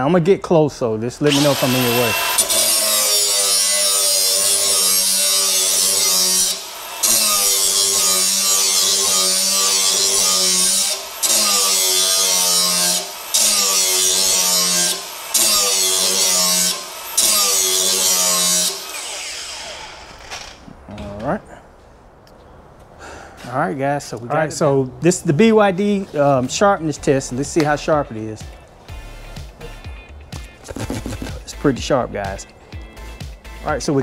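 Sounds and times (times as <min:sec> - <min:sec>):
angle grinder grinding steel blade: 0:01.2 - 0:20.6.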